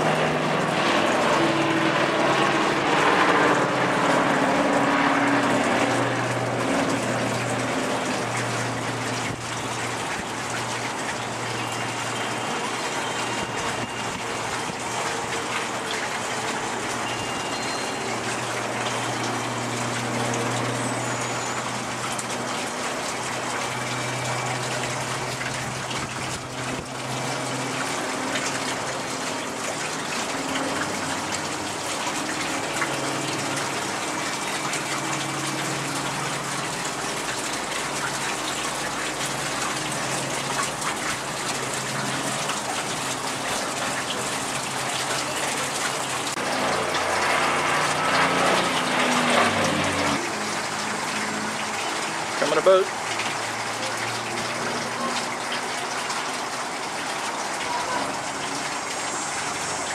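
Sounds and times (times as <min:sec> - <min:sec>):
turboprop plane flying past: 0:00.0 - 0:10.6, 0:23.2 - 0:52.3.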